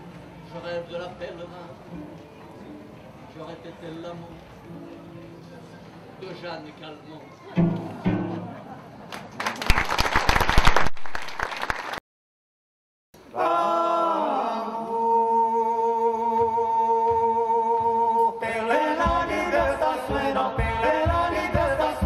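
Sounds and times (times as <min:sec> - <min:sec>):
frame drum beats: 0:07.6 - 0:08.6
men singing in close harmony: 0:13.3 - 0:22.0.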